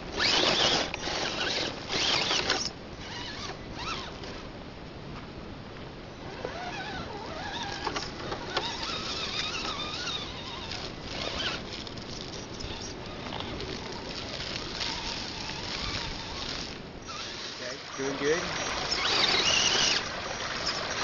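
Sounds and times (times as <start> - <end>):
electric motor and gears whining: 0.0 - 4.4, 6.2 - 21.0
tyres crunching on dirt and rocks: 5.1 - 17.3, 18.0 - 21.0.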